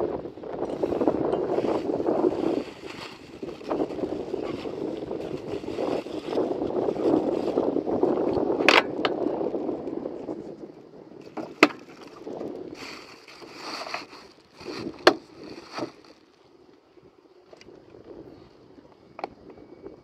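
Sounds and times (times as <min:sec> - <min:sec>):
water sloshing: 0:11.2 - 0:16.1
sponge scrubbing: 0:12.8 - 0:14.9.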